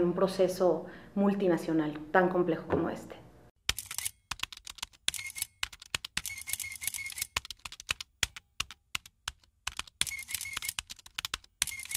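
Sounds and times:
rapid clicking bursts: 3.7s - 11.9s.

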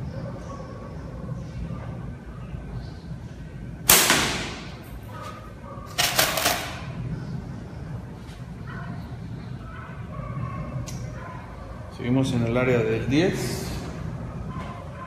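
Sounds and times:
slingshot crack: 3.9s - 4.8s.

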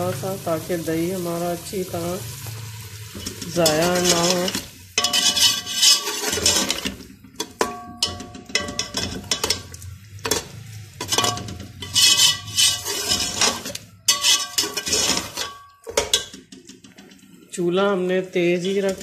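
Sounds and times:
metal spoon scraping metal pot: 3.1s - 17.4s, 18.5s - 19.0s
pot ringing: 3.5s - 16.6s.

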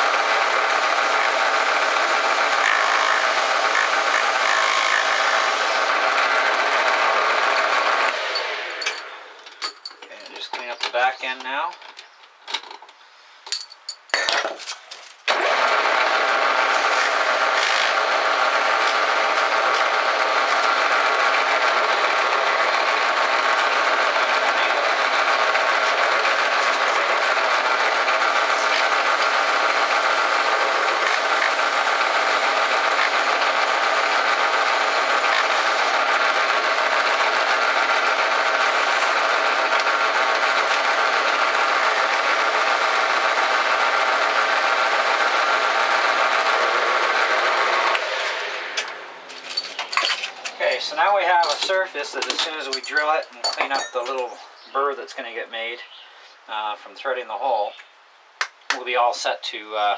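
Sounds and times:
metal lathe running: 0.0s - 9.4s, 15.3s - 49.6s.

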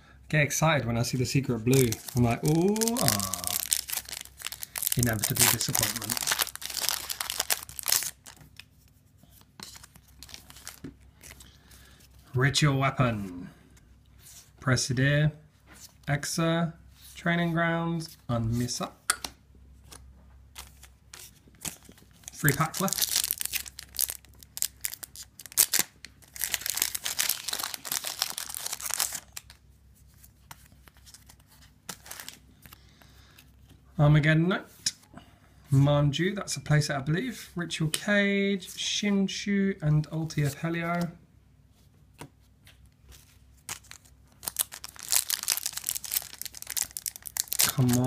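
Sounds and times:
cards rustling and clicking: 1.4s - 11.5s, 19.2s - 29.6s, 30.2s - 32.8s, 42.2s - 48.0s
foil wrapper tearing: 1.7s - 8.4s, 22.3s - 29.6s, 43.7s - 48.0s.

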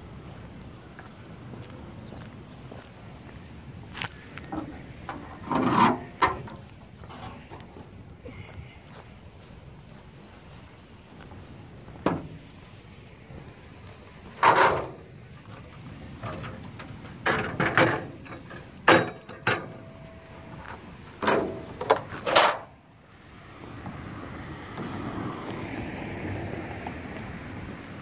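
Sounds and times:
metal post scraping on concrete: 4.5s - 7.9s, 14.2s - 15.1s.

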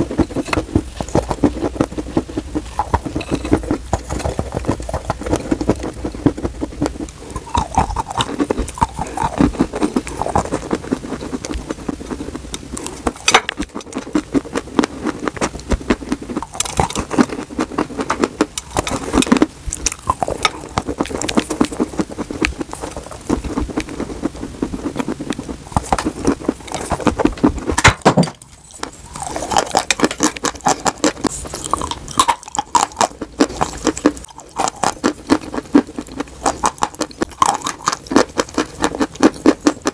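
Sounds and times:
crunching and chewing dry sticks: 0.0s - 39.9s.

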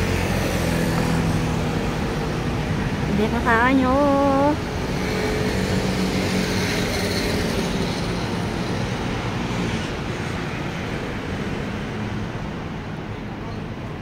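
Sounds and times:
road traffic passing: 0.0s - 14.0s.

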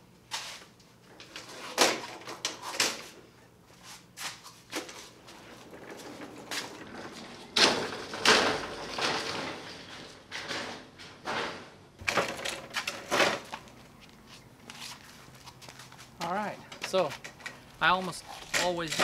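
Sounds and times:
saw stand rattling: 12.0s - 13.6s, 16.7s - 19.0s.

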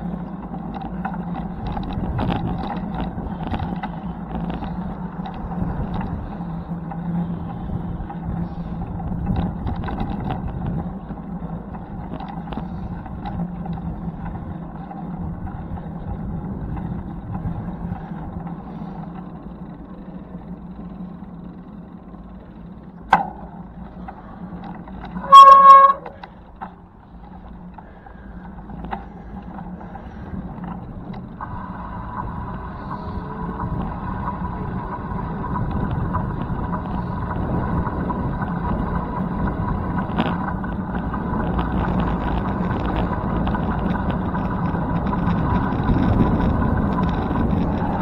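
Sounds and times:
steady background rumble: 0.0s - 48.0s
horn toot: 25.2s - 26.2s.

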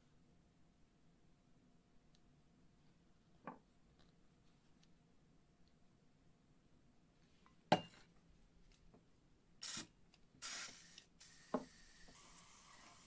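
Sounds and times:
aerosol spray hissing: 9.6s - 13.0s.

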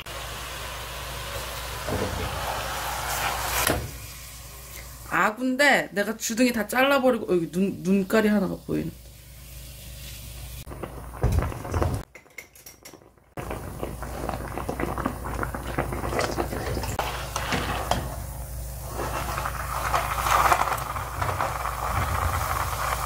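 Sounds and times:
water bubbling: 13.4s - 17.0s
utensil scraping a frying pan: 13.4s - 23.0s.

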